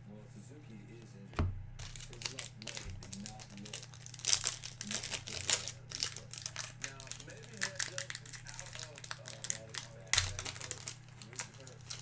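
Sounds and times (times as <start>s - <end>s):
dull thump: 1.3s - 1.8s
foil wrapper tearing and crinkling: 1.8s - 12.0s.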